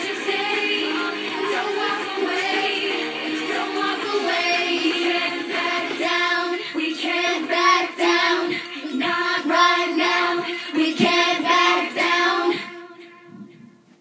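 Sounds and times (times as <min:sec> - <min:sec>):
girl singing into a microphone: 0:05.7 - 0:13.7.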